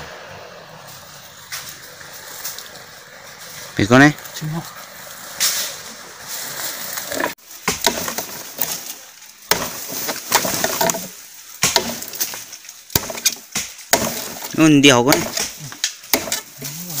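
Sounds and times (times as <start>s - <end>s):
footsteps on leaf litter: 0.8s - 13.5s
dry bamboo snapping and rustling: 1.5s - 3.6s, 4.2s - 17.0s.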